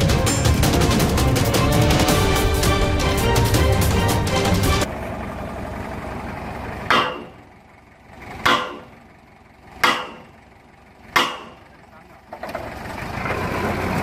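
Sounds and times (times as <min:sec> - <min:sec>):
music: 0:00.0 - 0:04.9
engine humming: 0:00.0 - 0:14.0
sledgehammer clanging on steel: 0:06.9 - 0:07.4, 0:08.5 - 0:09.0, 0:09.8 - 0:10.3, 0:11.2 - 0:11.7.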